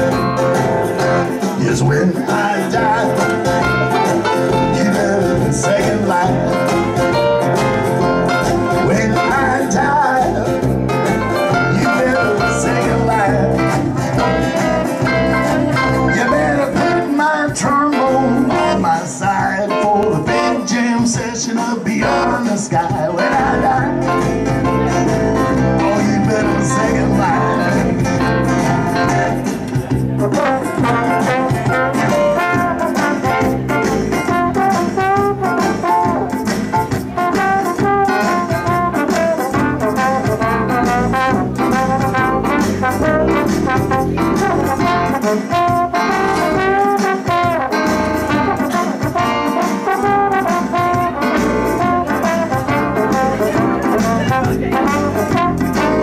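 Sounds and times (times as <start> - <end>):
jazz band accompaniment: 0.0 - 56.0
trombone solo: 17.9 - 19.0, 30.2 - 56.0.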